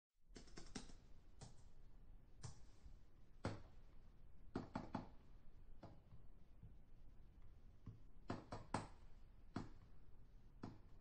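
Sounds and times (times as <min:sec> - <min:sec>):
distant keyboard typing: 0:00.4 - 0:01.0.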